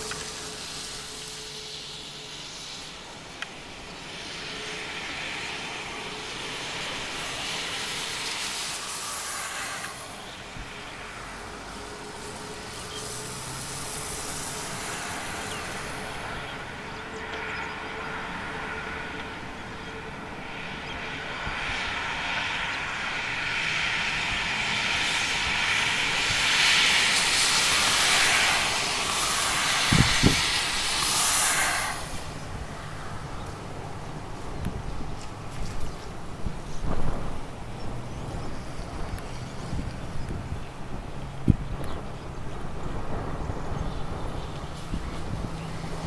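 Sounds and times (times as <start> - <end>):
jet engines rushing hiss: 0.0 - 46.0
wind thumps on microphone: 27.2 - 33.5, 34.6 - 40.7, 41.4 - 46.0.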